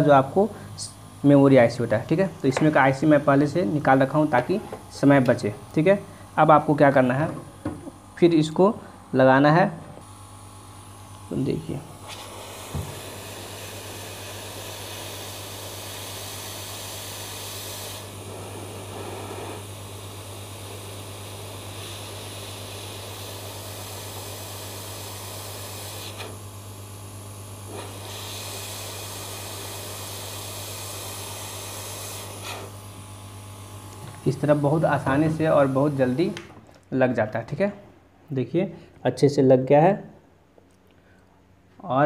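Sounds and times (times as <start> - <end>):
hot air gun hissing: 10.7 - 36.4.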